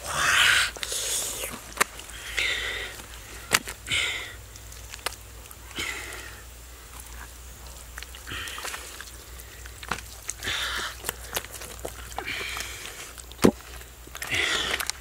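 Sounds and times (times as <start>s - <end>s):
small wet clicks: 0.7s - 15.0s
hands rubbing wet paste into skin: 6.8s - 15.0s.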